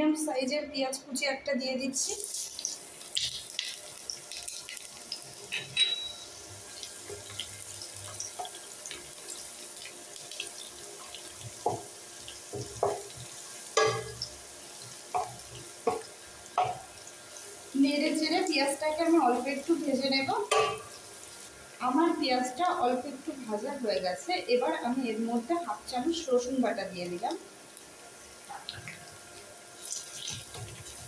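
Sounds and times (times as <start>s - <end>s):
onion sizzling in hot oil: 1.9s - 31.0s
wooden spatula knocking on pan: 11.4s - 11.9s, 12.5s - 13.2s, 13.8s - 14.2s, 15.1s - 16.9s, 20.4s - 20.9s.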